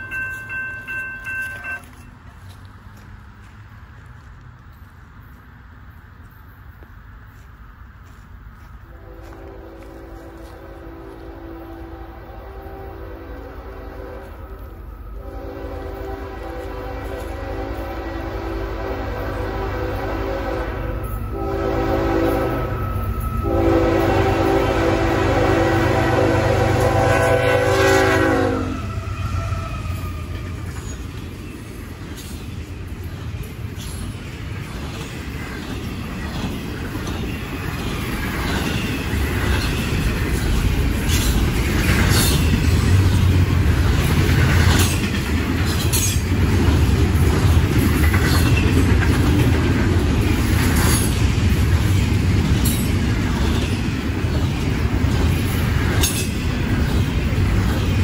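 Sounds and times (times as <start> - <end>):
locomotives rumbling past: 8.5 - 58.0
locomotive air horn chord: 8.9 - 30.0
train wheels clicking over rails: 28.0 - 58.0.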